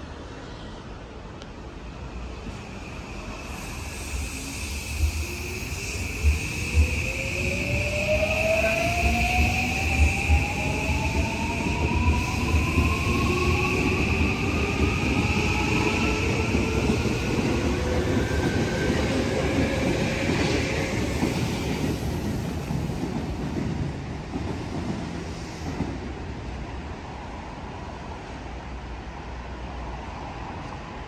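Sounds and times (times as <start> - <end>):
train wheels rumbling: 1.9 - 26.6.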